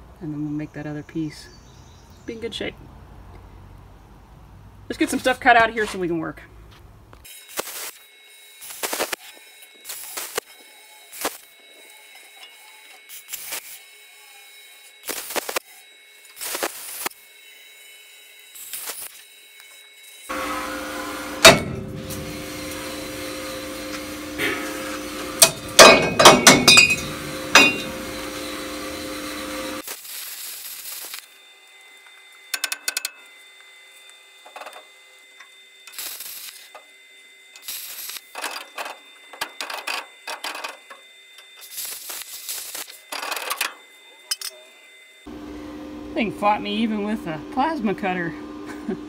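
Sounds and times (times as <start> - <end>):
plasma cutter cutting steel: 7.2 - 45.2
loud metallic knocks: 21.4 - 22.4, 25.4 - 28.0.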